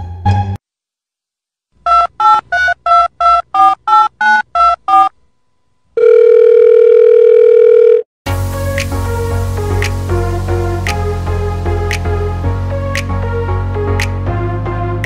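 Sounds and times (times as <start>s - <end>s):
music: 0.0s - 0.6s, 8.3s - 15.0s
telephone keypad dialing beeps: 1.9s - 5.1s, 6.0s - 8.0s.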